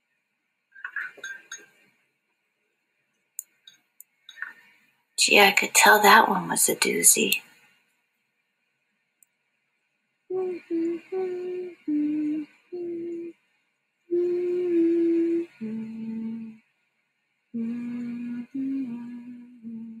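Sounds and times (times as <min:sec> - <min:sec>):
woman humming a slow tune: 0:10.3 - 0:13.3, 0:14.1 - 0:16.6, 0:17.6 - 0:20.0.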